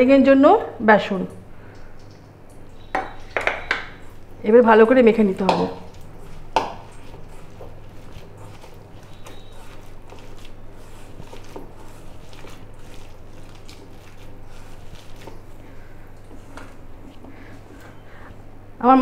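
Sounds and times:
steady low hum: 0:00.0 - 0:19.0
hand squishing wet mix: 0:05.1 - 0:18.2.

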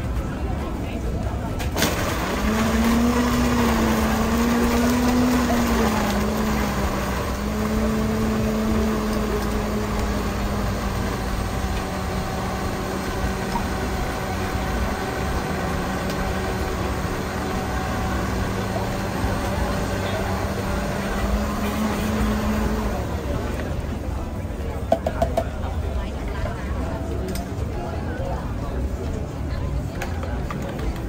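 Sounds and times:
crowd chatter: 0:00.0 - 0:31.0
electric blender running: 0:01.8 - 0:23.8.

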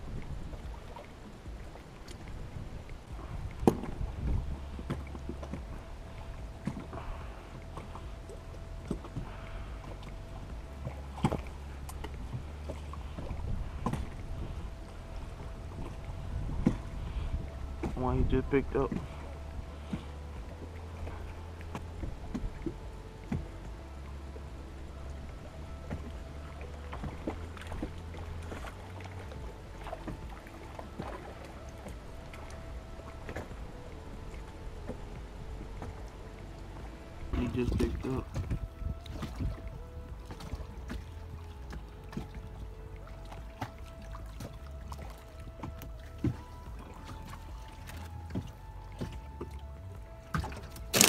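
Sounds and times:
wind buffeting microphone: 0:00.0 - 0:47.8
faint steady tone: 0:00.0 - 0:51.0
knocks and clicks from boat: 0:00.0 - 0:51.0
water lapping against boat hull: 0:00.0 - 0:51.0
knocks against boat: 0:03.6 - 0:04.3, 0:37.3 - 0:41.1.

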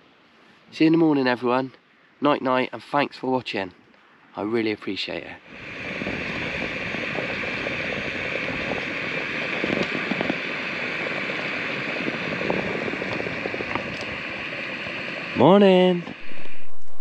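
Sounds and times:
gas stove hissing: 0:05.4 - 0:17.0.

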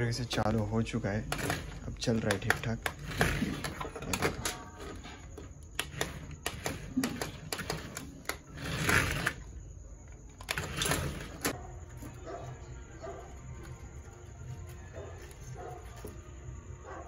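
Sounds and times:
toy car motor whirring: 0:01.3 - 0:09.7.

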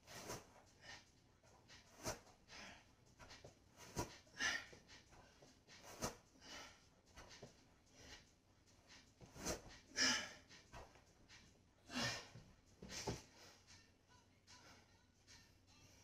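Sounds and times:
person breathing hard: 0:02.0 - 0:03.0, 0:03.8 - 0:08.3, 0:09.4 - 0:10.6, 0:11.8 - 0:13.7.

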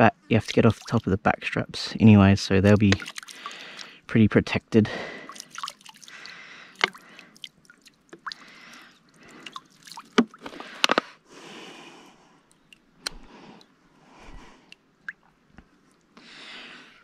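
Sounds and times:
water splashing from bottle: 0:00.6 - 0:01.0, 0:02.7 - 0:04.0, 0:05.2 - 0:10.8.

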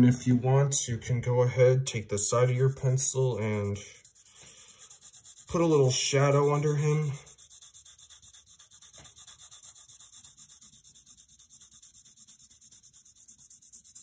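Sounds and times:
pencil scratching on paper: 0:02.4 - 0:14.0.

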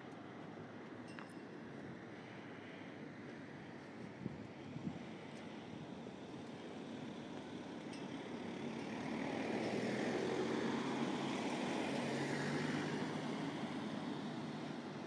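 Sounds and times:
motor vehicle driving past: 0:08.4 - 0:14.9.

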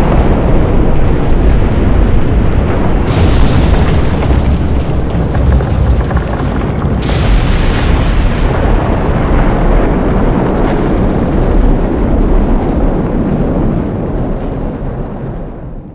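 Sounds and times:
low rumble of eruption: 0:00.0 - 0:15.8
sharp blast: 0:03.1 - 0:08.4.

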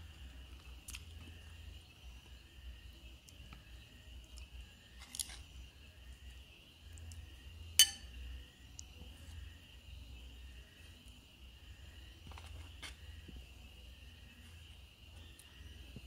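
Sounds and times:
high-pitched insect chorus: 0:00.0 - 0:16.0
metal spoon clinking on plate: 0:07.8 - 0:08.1.

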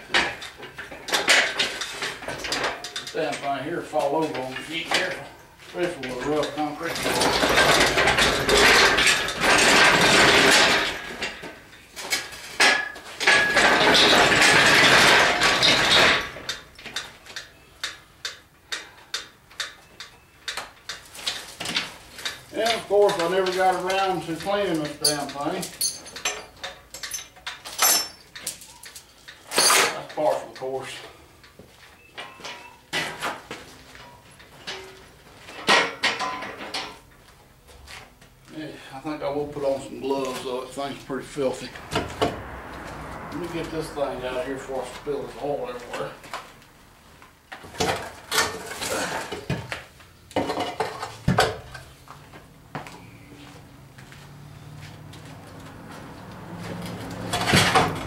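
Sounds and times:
hoist casters rattling on concrete: 0:00.0 - 0:31.2
metal parts clanking: 0:06.0 - 0:16.7, 0:21.3 - 0:30.7, 0:34.1 - 0:37.1.

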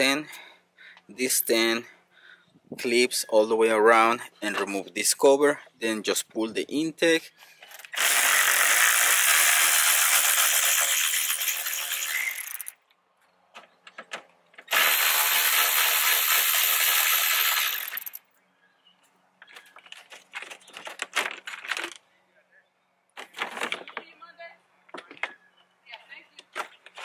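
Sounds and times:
cordless electric ratchet spinning: 0:07.9 - 0:12.8, 0:14.7 - 0:18.2.

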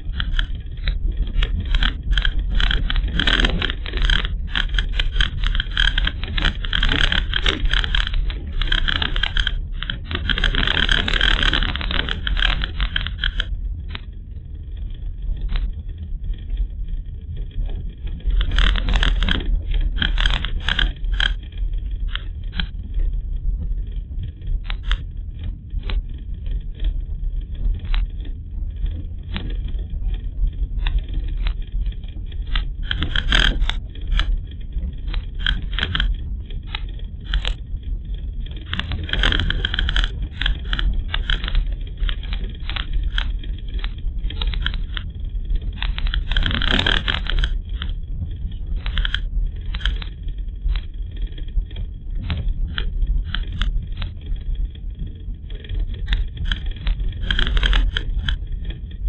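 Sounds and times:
knocks and rattles: 0:00.0 - 0:13.5, 0:18.2 - 0:22.7, 0:30.8 - 0:37.6, 0:38.5 - 0:50.9
scraping bursts: 0:00.0 - 0:13.5, 0:18.3 - 0:22.7, 0:31.0 - 0:37.6, 0:38.6 - 0:48.0, 0:55.9 - 0:58.4
car interior low rumble: 0:00.0 - 0:59.0.

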